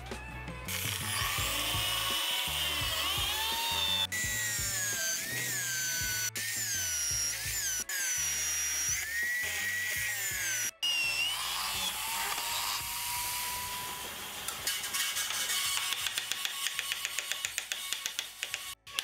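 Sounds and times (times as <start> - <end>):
background music: 0.0 - 14.6
electric drill boring into wood: 0.7 - 19.0.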